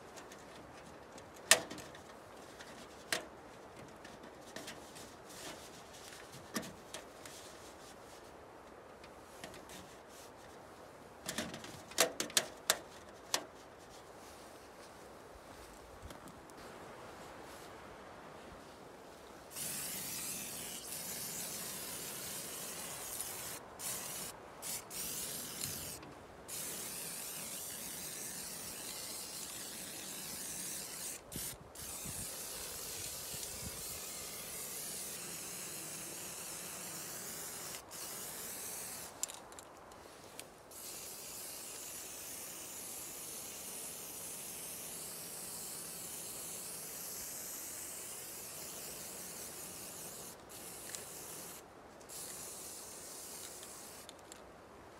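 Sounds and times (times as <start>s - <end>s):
spray paint can hissing: 19.5s - 39.4s, 40.7s - 54.1s.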